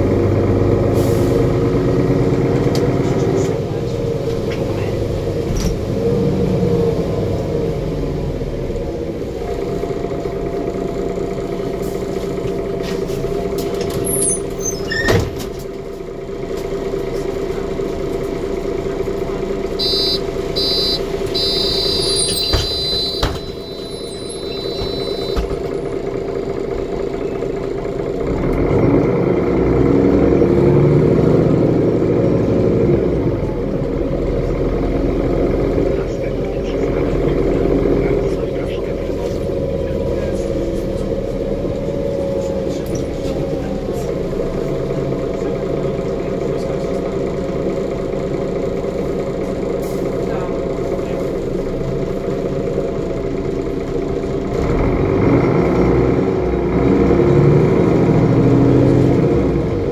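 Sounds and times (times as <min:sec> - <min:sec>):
bus engine humming: 0:00.0 - 0:59.9
high electronic beeps: 0:19.8 - 0:25.4.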